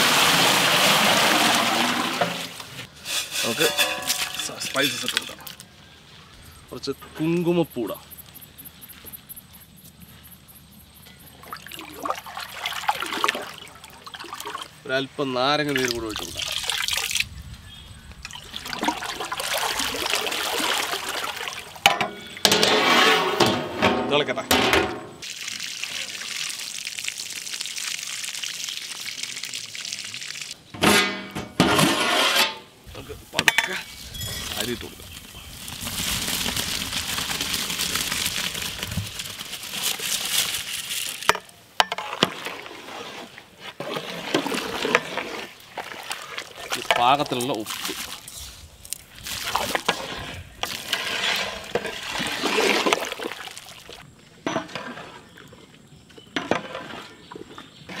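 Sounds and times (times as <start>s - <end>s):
rice pouring into water: 0.0s - 2.2s, 25.2s - 30.6s, 34.5s - 41.2s
water pouring into pot: 0.0s - 2.6s, 18.4s - 21.8s, 25.2s - 30.6s
ladle stirring boiling pot: 0.0s - 5.6s, 39.8s - 48.4s, 49.4s - 53.5s
metal knocks: 21.8s - 25.2s.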